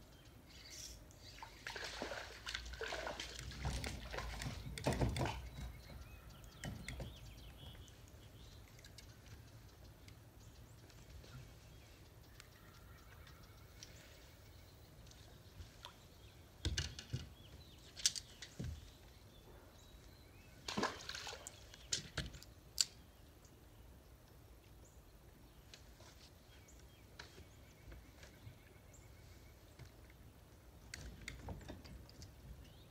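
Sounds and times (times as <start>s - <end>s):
water splashing: 1.4s - 5.6s, 20.6s - 21.7s
knocks and clunks on boat deck: 3.5s - 7.4s.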